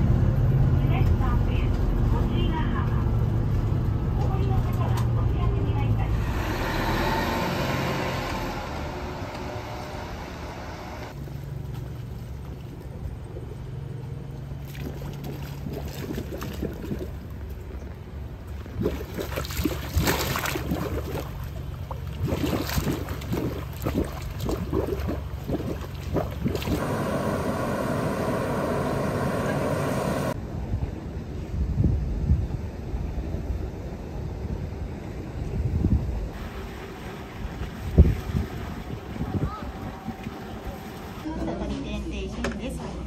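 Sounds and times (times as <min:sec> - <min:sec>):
water bubbling and splashing: 0:14.6 - 0:30.4
steam hissing: 0:26.7 - 0:30.4
fountain water splashing: 0:36.4 - 0:41.3.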